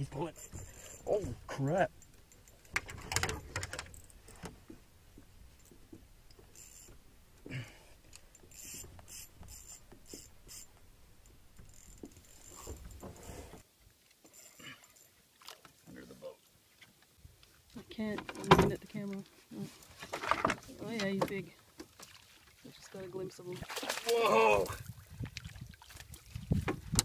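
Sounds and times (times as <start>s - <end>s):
fishing reel clicking and rattling: 0.3s - 1.1s, 6.4s - 7.0s, 8.1s - 13.4s.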